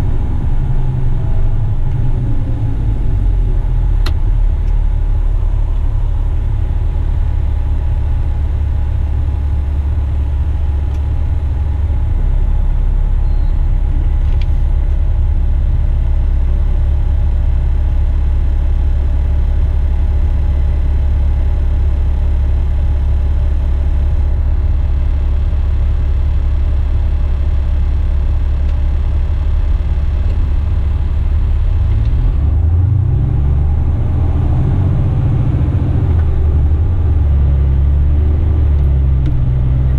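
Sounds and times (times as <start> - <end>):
diesel truck engine idling: 0.0 - 39.9
truck engine revving: 29.7 - 39.9.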